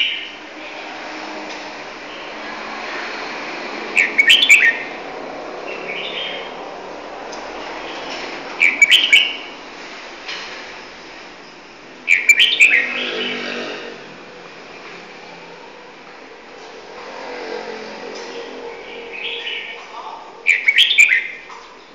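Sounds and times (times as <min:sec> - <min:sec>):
songbird chirping: 0:03.9 - 0:05.0, 0:07.8 - 0:09.6, 0:11.4 - 0:13.4, 0:18.2 - 0:21.9.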